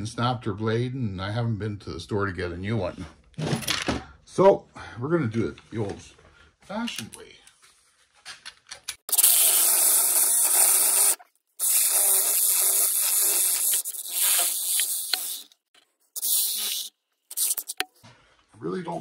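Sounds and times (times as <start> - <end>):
reciprocating saw cutting copper: 9.1 - 15.6, 16.2 - 17.8.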